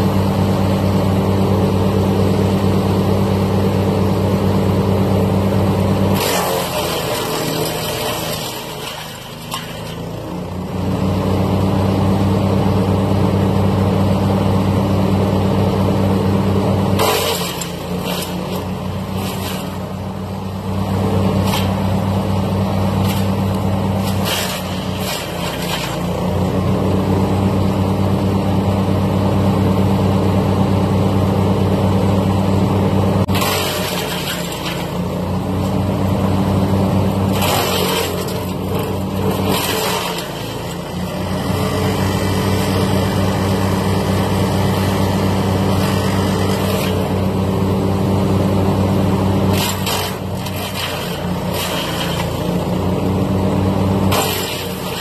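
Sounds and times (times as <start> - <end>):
wood chipper engine running: 0.0 - 55.0
branches being chipped: 22.9 - 26.1, 49.5 - 52.6.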